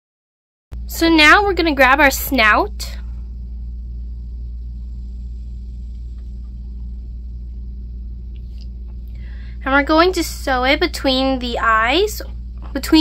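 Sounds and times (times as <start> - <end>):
low background hum: 0.8 - 13.0.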